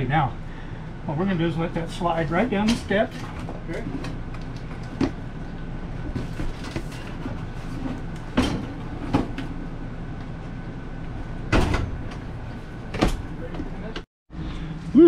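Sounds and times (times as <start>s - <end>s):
steady low hum: 0.0s - 15.0s
refrigerator knocking and scraping: 6.0s - 9.5s.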